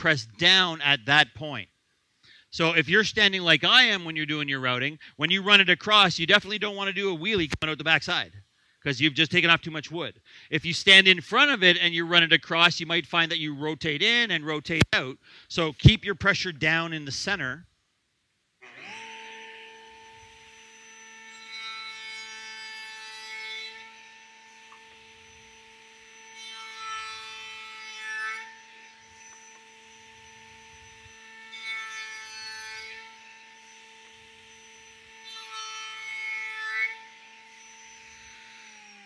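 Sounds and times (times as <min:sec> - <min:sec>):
router spinning down: 0:18.6 - 0:21.6, 0:28.4 - 0:31.4, 0:37.5 - 0:39.0
router cutting wood: 0:18.6 - 0:39.0
router whining: 0:18.6 - 0:39.0.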